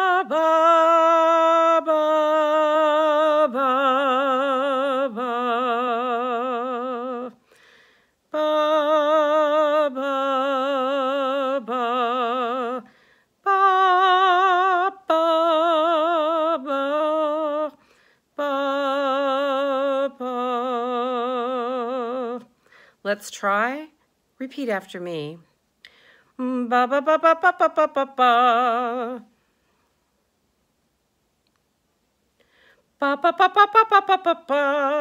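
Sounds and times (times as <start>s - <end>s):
woman breathing: 7.4s - 8.3s, 12.8s - 13.4s, 17.8s - 18.4s, 22.5s - 23.1s, 25.8s - 26.4s, 32.3s - 33.0s.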